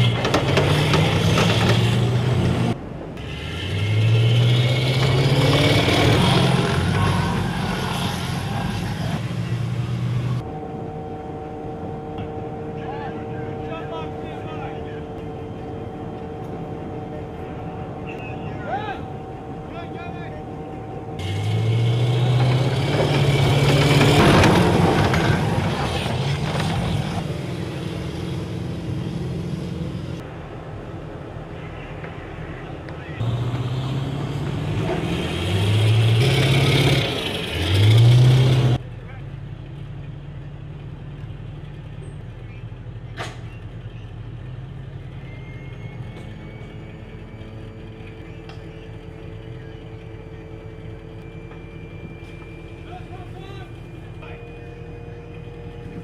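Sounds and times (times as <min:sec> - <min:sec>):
vehicle engine running hard: 0:00.0 - 0:10.7, 0:12.0 - 0:30.5, 0:31.6 - 0:56.0
armoured vehicle engine idling: 0:38.8 - 0:56.0.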